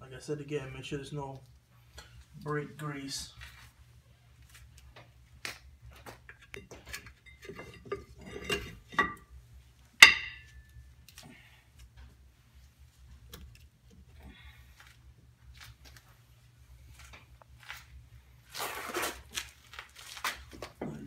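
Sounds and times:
sharp metallic clank: 10.0 - 10.7.

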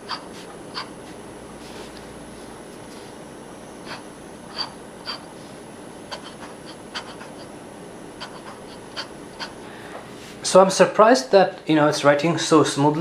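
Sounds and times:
fountain pen scratching on paper: 3.9 - 5.3, 6.1 - 7.5, 8.2 - 9.6.

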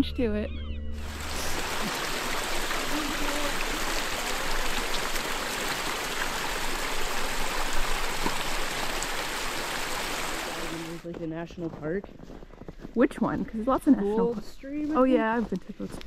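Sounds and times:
creek water rushing: 1.0 - 11.1.

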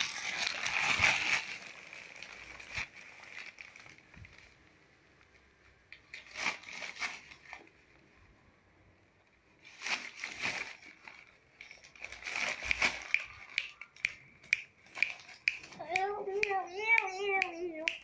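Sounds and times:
newspaper crumpling and rustling: 0.0 - 8.1, 9.6 - 14.0
paper crinkles: 0.0 - 8.1, 9.6 - 16.6.

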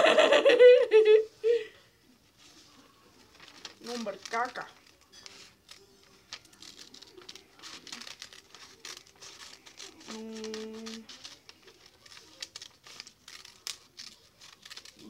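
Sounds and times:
paper rustling and crinkling: 2.2 - 15.0
scissors snipping paper: 3.4 - 15.0.

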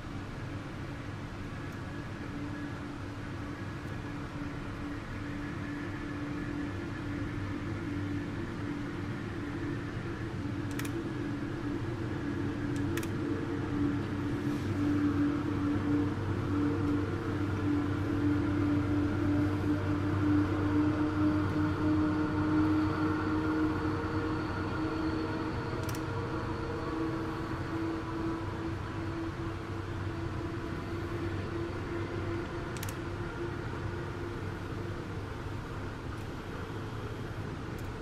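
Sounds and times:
diesel locomotive droning hum: 0.0 - 38.0
brief clicks: 25.8 - 26.0, 32.8 - 33.0.

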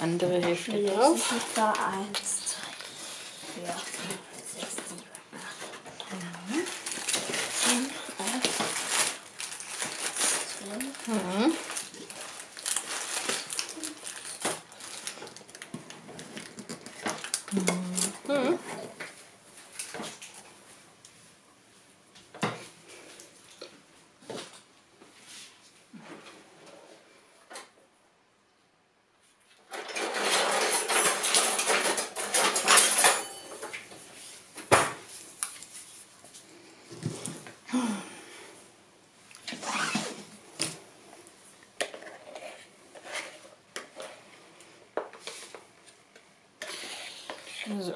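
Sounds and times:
kitchen clattering: 29.7 - 33.9.

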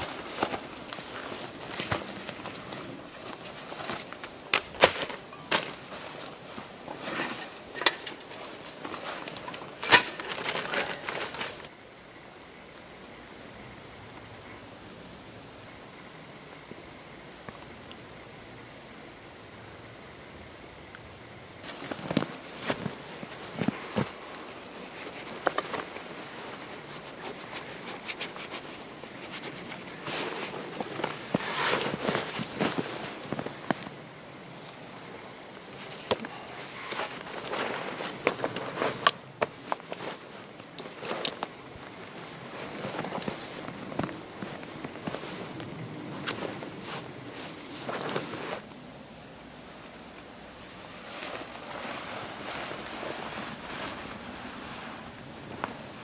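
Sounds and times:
canvas rustling: 0.0 - 11.8, 21.6 - 48.9, 50.0 - 56.0
faint steady hiss: 0.0 - 56.0.

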